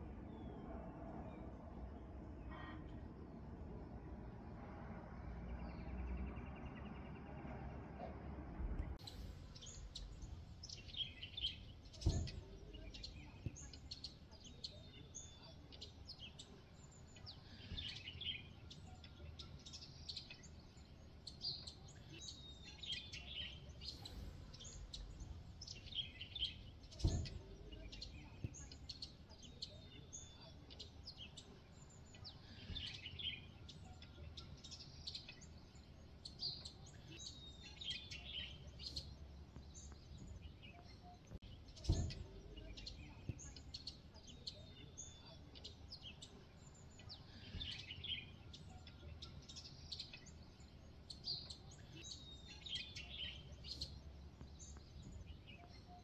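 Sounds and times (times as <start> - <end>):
small birds chirping and singing: 0.0 - 56.0
dull thumps: 12.0 - 13.6, 26.8 - 28.6, 41.8 - 42.7.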